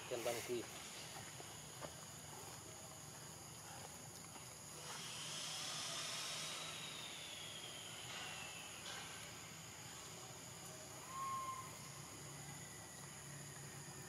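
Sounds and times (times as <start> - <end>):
insects buzzing: 0.0 - 14.0
loud insect buzzing call: 4.8 - 14.0.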